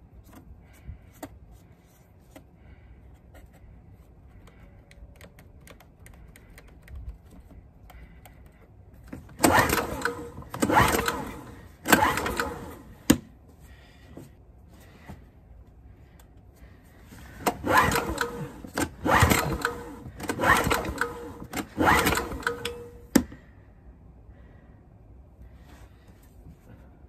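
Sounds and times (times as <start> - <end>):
generator pull-starter cranking: 9.2 - 13.3, 17.4 - 23.3.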